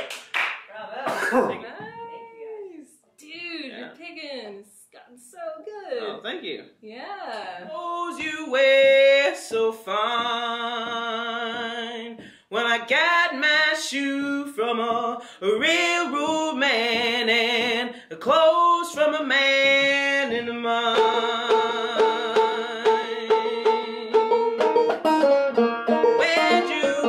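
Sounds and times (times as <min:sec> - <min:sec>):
banjo picking: 0:15.6 - 0:17.8, 0:19.3 - 0:27.0.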